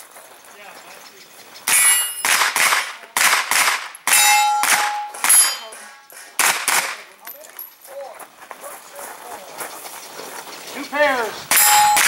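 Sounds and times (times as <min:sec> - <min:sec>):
bullet hitting steel target: 0:01.7 - 0:07.0, 0:11.5 - 0:12.0
gunshots: 0:01.7 - 0:07.1.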